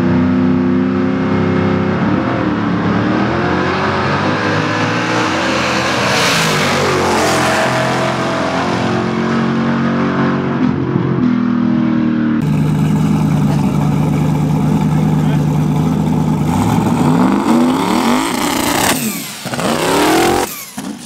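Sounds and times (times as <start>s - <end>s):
racing cars accelerating: 0.0s - 21.0s
engine running steadily: 12.4s - 21.0s.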